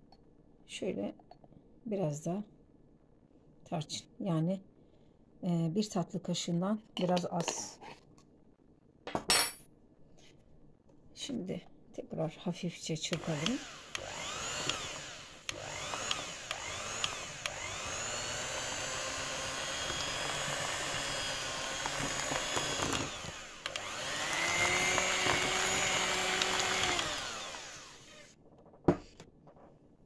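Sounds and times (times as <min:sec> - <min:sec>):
electric hand mixer whine: 0:13.2 - 0:28.4.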